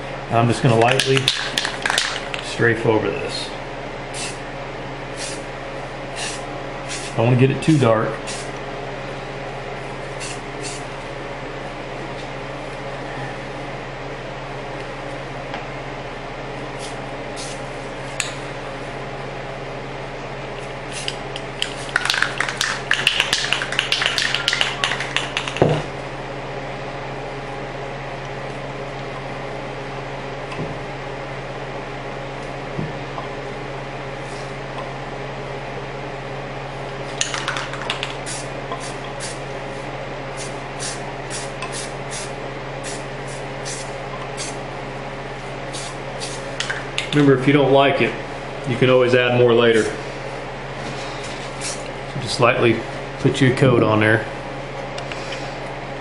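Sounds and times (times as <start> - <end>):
steady low hum: 0.0 - 56.0
spray can shaken with rattling ball: 1.0 - 2.4, 21.0 - 25.6, 37.2 - 39.0.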